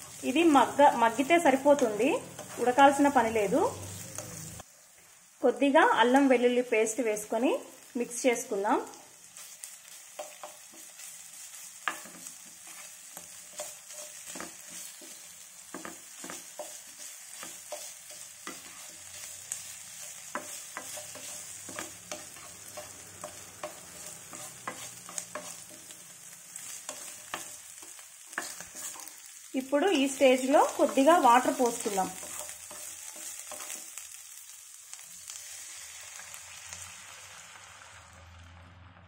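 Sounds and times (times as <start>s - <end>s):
vegetables sizzling in oil: 0.0s - 38.8s
wooden spatula scraping a pan: 9.4s - 26.0s, 26.6s - 29.3s.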